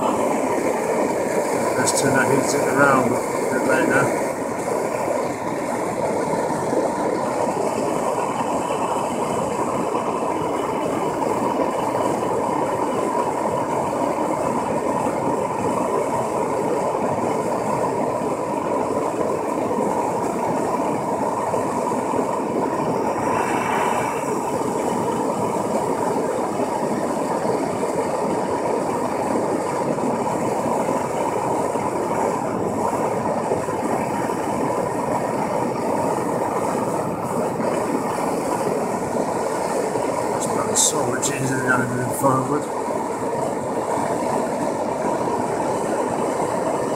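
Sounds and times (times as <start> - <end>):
blowtorch flame rushing: 0.0 - 46.9.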